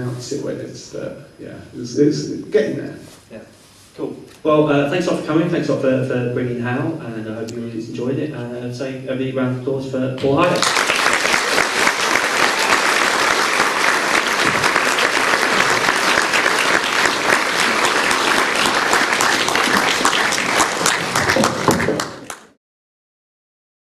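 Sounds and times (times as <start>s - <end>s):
audience applauding: 10.4s - 22.6s.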